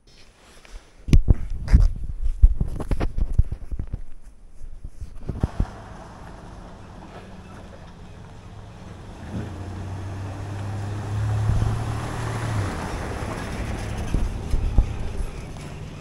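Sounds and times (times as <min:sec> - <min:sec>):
vehicle passing: 0:05.4 - 0:16.0.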